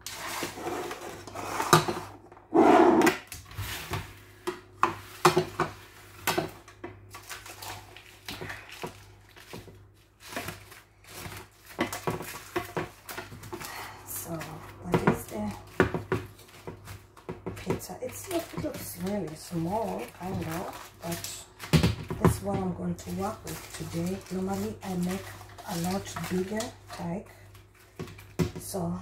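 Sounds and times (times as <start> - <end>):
baking paper rustling: 7.0 - 28.4.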